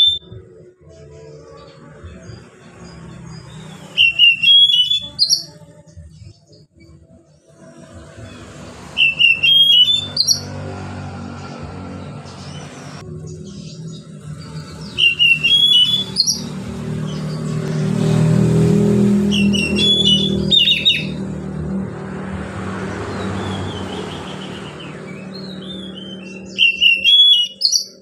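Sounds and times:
bird singing whistled notes: 0.0s - 0.4s, 3.3s - 5.6s, 8.9s - 10.7s, 13.4s - 17.5s, 19.2s - 21.2s, 23.2s - 28.0s.

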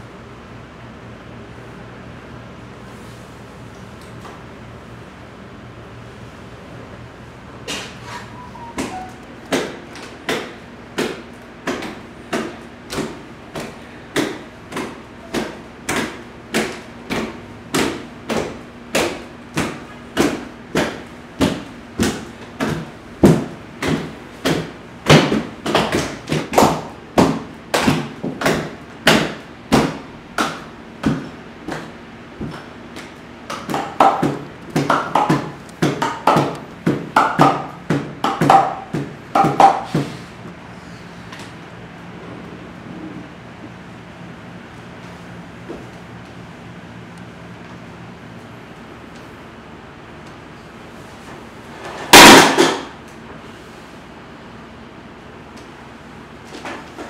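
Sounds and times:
higher busier sounds: 6.2s - 9.5s.

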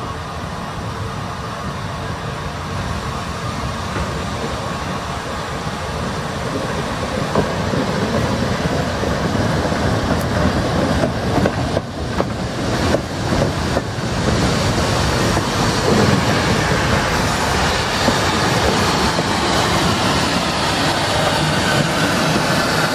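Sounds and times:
train wheels rumbling on rails: 0.0s - 22.9s
wheels clicking over rail joints: 6.4s - 22.9s.

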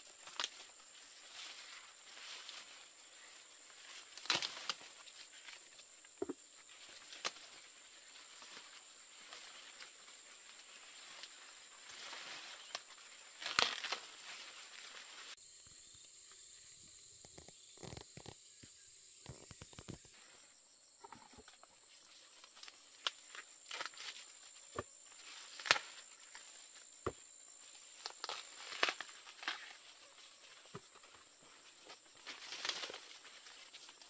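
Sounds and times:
corn stalks and leaves rustling: 0.0s - 16.7s, 21.2s - 34.0s
corn ears snapping off stalks: 0.2s - 0.8s, 3.8s - 5.6s, 6.8s - 7.7s, 11.2s - 15.1s, 22.6s - 26.5s, 28.0s - 29.9s, 32.2s - 34.0s.

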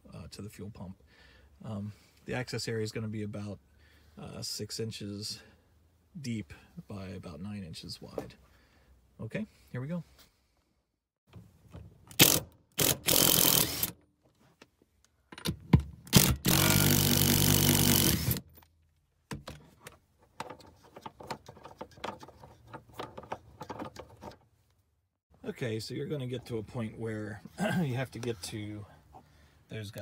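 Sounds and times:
impact driver zipping nuts loose: 12.1s - 14.0s, 16.1s - 18.5s.

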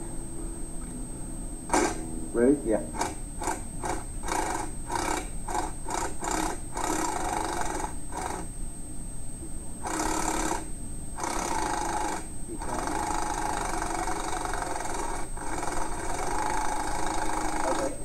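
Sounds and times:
impact wrench hammering: 1.7s - 2.1s.

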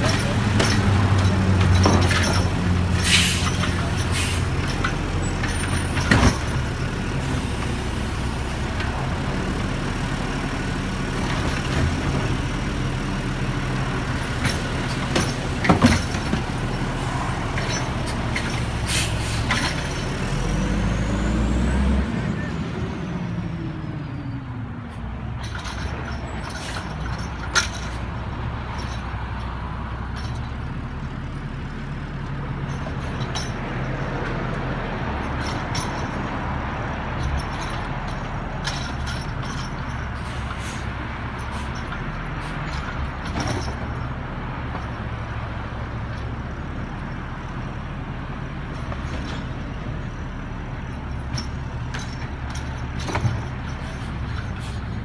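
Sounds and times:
sharp knocks and clanks: 0.0s - 6.8s, 14.2s - 16.8s, 37.1s - 40.8s, 41.4s - 44.1s, 50.8s - 55.0s
garbage truck running: 0.0s - 55.0s.

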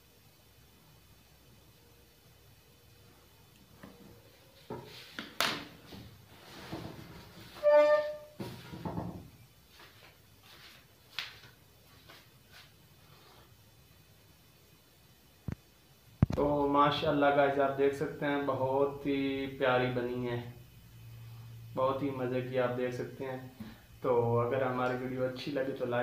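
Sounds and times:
short squeak: 7.6s - 8.4s
knocks and thumps: 8.4s - 9.3s.

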